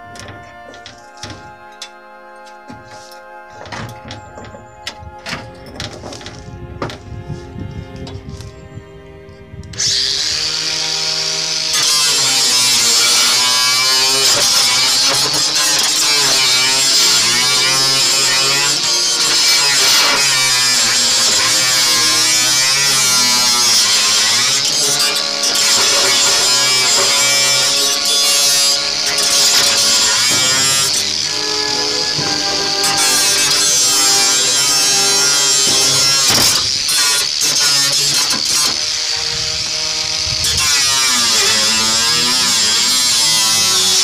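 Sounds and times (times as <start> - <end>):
angle grinder cutting metal: 9.7 - 44.0.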